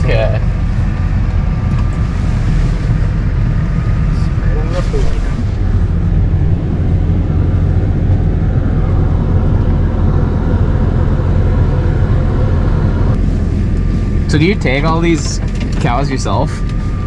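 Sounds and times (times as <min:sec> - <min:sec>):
tractor diesel engine running: 0:00.0 - 0:17.0.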